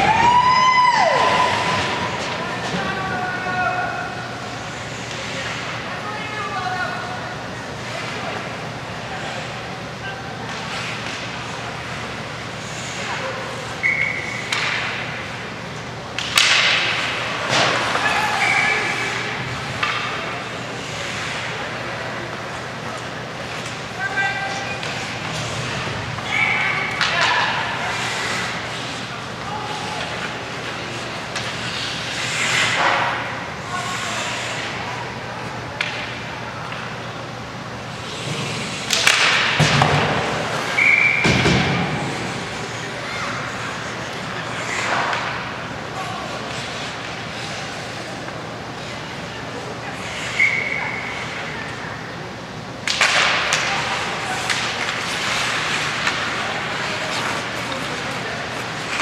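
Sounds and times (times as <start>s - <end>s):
spectators' voices: 0.0s - 59.0s
puck and sticks knocking boards: 16.2s - 18.2s, 38.3s - 42.3s, 52.8s - 58.0s
referee's whistle: 40.8s - 41.4s.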